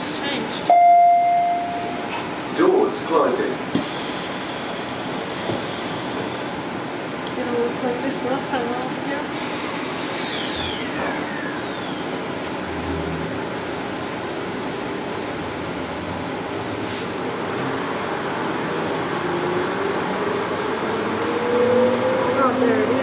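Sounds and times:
train carriage rumble and hiss: 0.0 - 9.6, 12.2 - 23.0
traction motor whine: 9.2 - 14.2
high falling squeal: 9.5 - 12.3.

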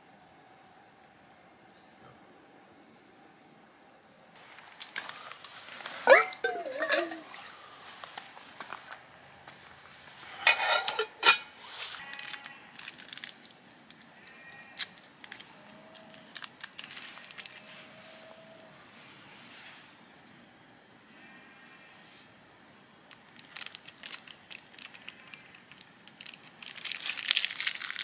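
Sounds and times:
clinks of cookware being handled: 6.0 - 7.4, 10.4 - 11.5
faint held tone: 6.0 - 7.7.

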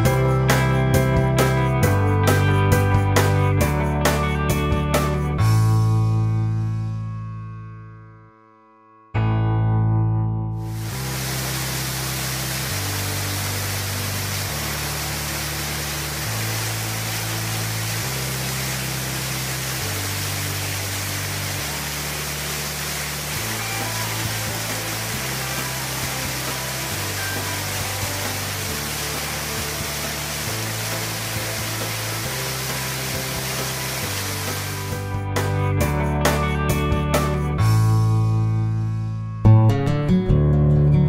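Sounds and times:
bass notes: 0.0 - 8.3, 8.9 - 41.0
soft background music: 10.6 - 41.0
waterfall rushing over rocks: 10.7 - 35.1
guitar strumming: 39.4 - 41.0.

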